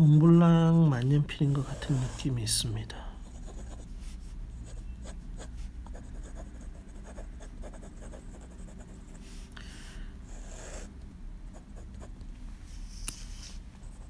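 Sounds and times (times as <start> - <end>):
fountain pen scratching on paper: 1.5 - 2.3, 3.2 - 3.9, 4.6 - 9.2, 10.3 - 10.9.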